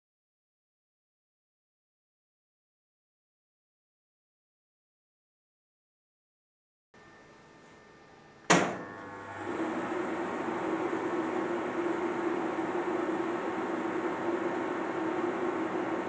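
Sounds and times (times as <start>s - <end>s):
sharp switch click: 8.5s - 8.8s.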